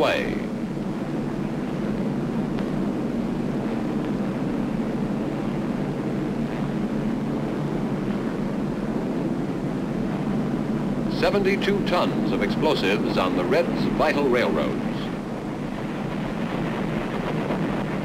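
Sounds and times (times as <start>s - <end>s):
propeller aircraft engines droning: 0.0s - 18.0s.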